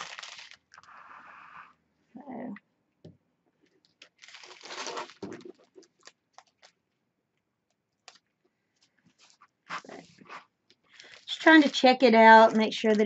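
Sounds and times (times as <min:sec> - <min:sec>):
plastic bags crinkling: 0:00.0 - 0:00.9, 0:03.8 - 0:06.8, 0:10.9 - 0:13.0.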